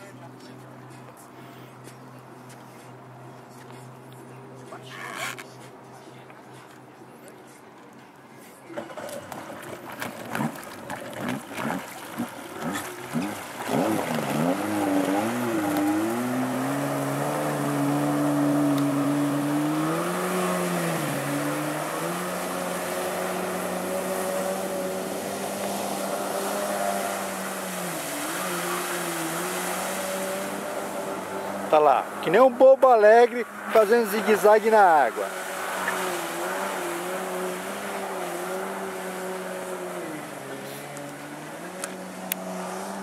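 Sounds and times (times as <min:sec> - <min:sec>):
jet ski engine revving: 0:08.8 - 0:43.0.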